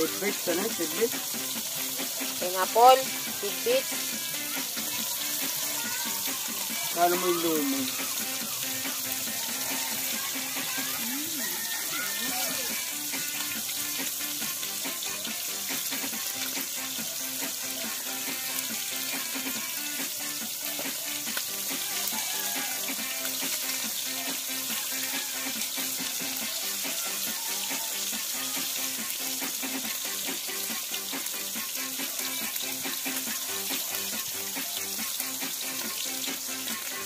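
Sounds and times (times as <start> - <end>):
food sizzling in a wok: 0.0 - 37.0
music: 0.0 - 37.0.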